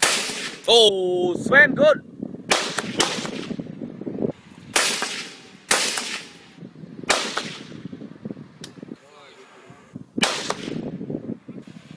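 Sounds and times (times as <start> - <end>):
rifle shots echoing: 0.0 - 0.7, 2.5 - 3.6, 4.7 - 7.8, 10.2 - 10.8.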